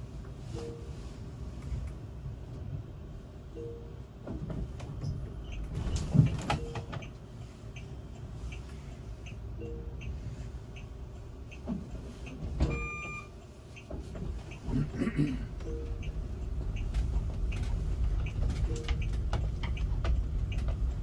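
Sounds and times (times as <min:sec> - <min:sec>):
cars passing outside: 0:00.0 - 0:21.0
low steady cabin rumble: 0:00.0 - 0:21.0
faint regular ticking: 0:06.8 - 0:12.4, 0:15.6 - 0:21.0.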